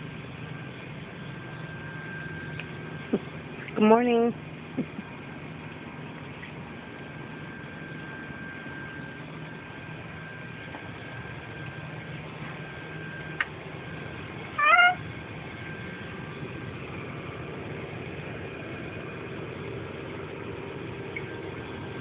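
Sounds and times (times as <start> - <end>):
rising squeal: 6.4 - 15.0.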